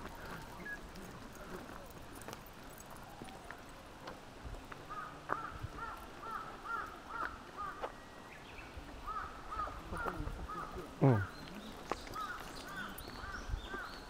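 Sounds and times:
crow cawing: 4.9 - 7.9, 9.1 - 11.3.

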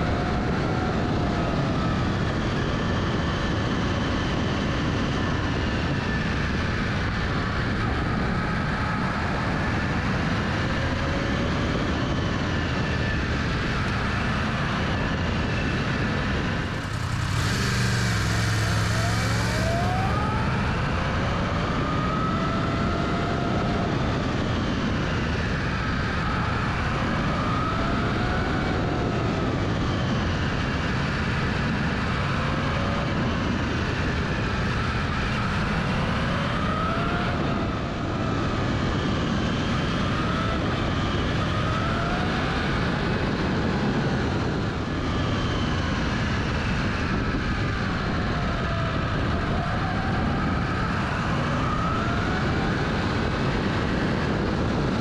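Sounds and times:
wind and road noise: 0.0 - 55.0
motorcycle engine revving: 14.4 - 23.5.

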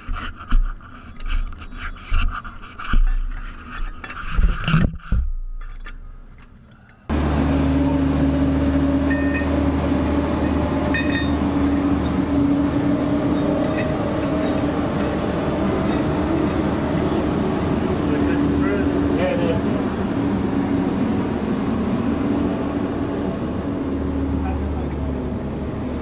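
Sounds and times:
machinery drone with low hum: 0.0 - 26.0
faint clinks: 9.1 - 9.6, 10.9 - 11.8.

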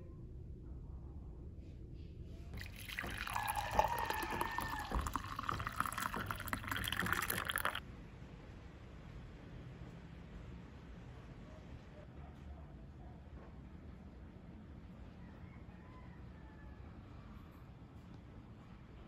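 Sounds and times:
coffee pouring into mug: 2.6 - 7.8
footsteps stomping on floor above: 4.2 - 6.8.

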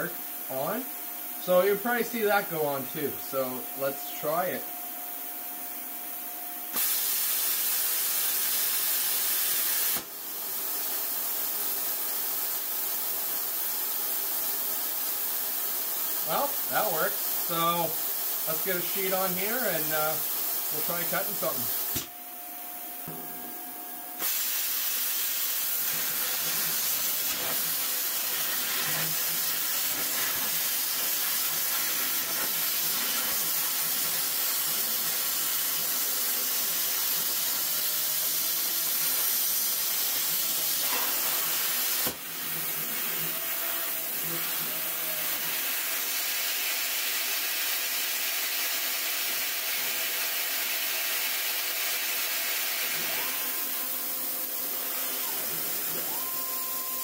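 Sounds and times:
plasma cutter hissing: 6.7 - 12.6, 15.8 - 22.1, 24.2 - 57.0.

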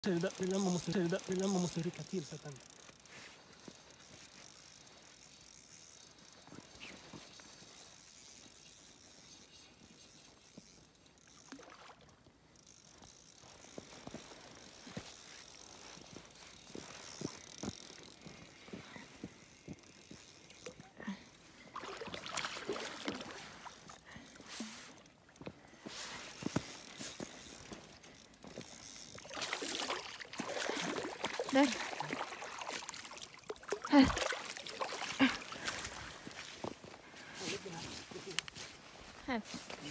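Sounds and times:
fishing reel ticking: 0.0 - 36.7
fish splashing: 21.6 - 24.0, 28.7 - 36.3.

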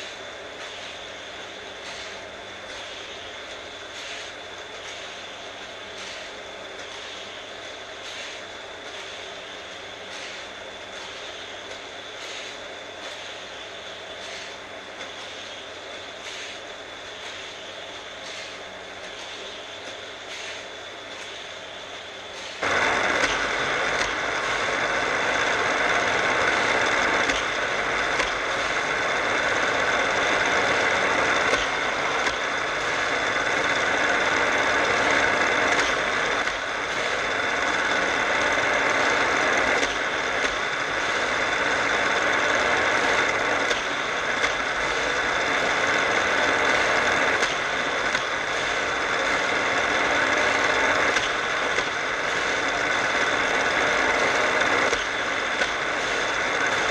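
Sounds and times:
toy track booster whirring: 22.4 - 56.9.

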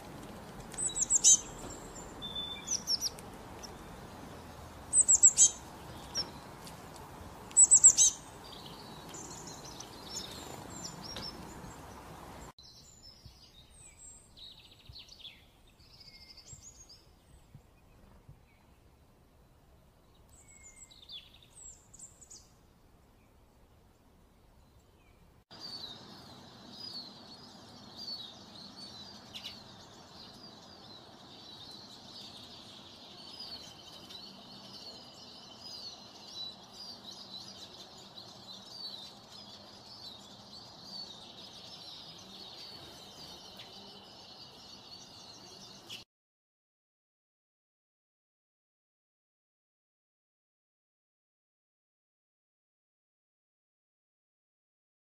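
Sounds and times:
high falling bird calls: 0.0 - 18.8
bird trill: 0.8 - 4.0, 4.9 - 6.4, 7.6 - 11.8
dense high bird chirps: 0.8 - 6.4.

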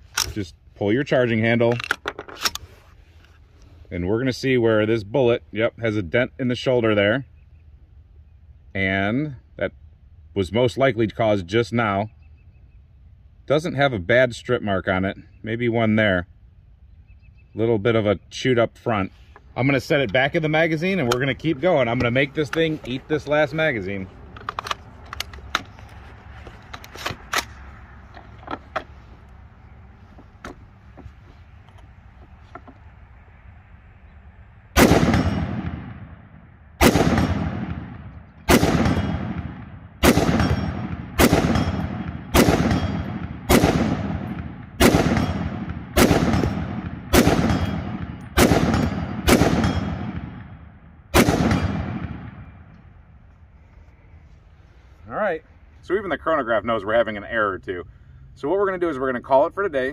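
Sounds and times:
rifle shots echoing: 34.8 - 52.7.

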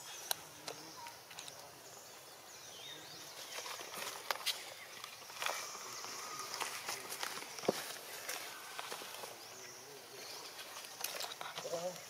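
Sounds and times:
steady high-pitched hiss: 0.0 - 12.0
light clicks and rustles: 10.4 - 12.0.

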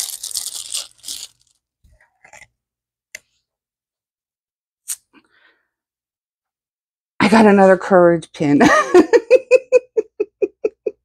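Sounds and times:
rustling and crinkling: 0.0 - 2.5.

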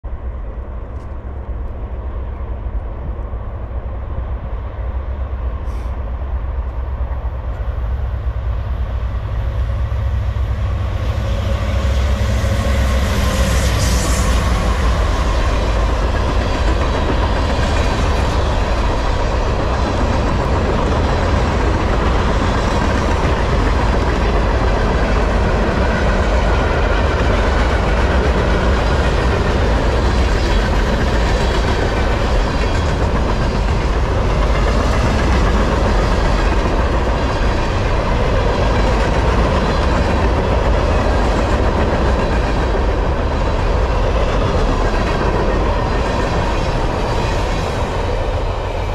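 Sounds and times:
steel wheels rumbling on rail: 0.0 - 48.9.

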